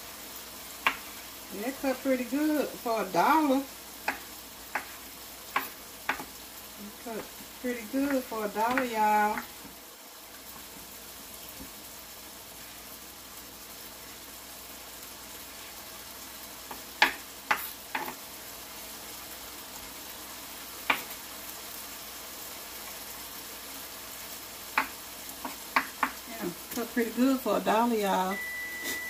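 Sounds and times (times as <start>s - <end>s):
meat sizzling in a skillet: 0.0s - 29.0s
knife chopping on wooden board: 4.0s - 6.3s.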